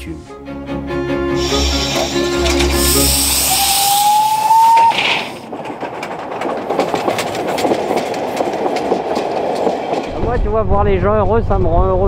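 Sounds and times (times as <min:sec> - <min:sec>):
steam train whistle: 0:01.3 - 0:05.2
steam hissing: 0:01.3 - 0:05.4
train wheels clicking over rails: 0:01.4 - 0:12.0.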